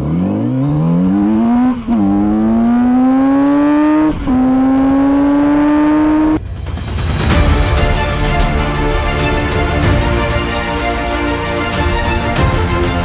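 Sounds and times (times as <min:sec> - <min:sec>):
motorcycle engine accelerating: 0:00.0 - 0:06.4.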